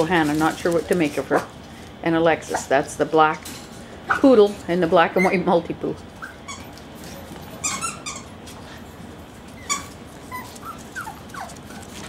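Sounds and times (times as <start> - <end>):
small dogs whimpering: 5.2 - 5.5, 6.2 - 8.4, 9.6 - 12.0.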